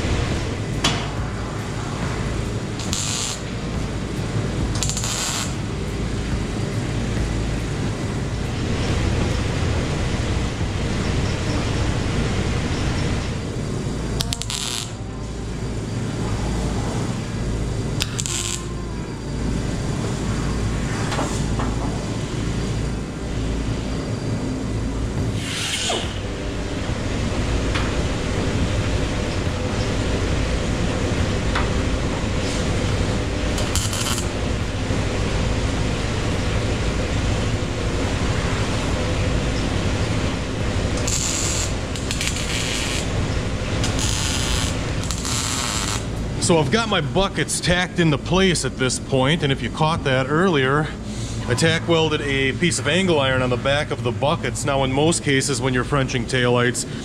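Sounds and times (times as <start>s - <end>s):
welder tack-welding steel: 0.0s - 5.8s, 12.8s - 15.1s, 18.0s - 18.8s, 31.0s - 34.7s, 40.4s - 46.3s
air-powered hand tool bursts: 43.8s - 46.1s.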